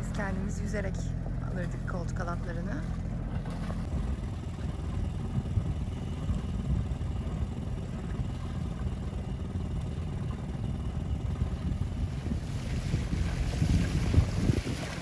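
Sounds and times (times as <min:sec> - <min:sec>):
boat engine idling: 0:00.0 - 0:15.0.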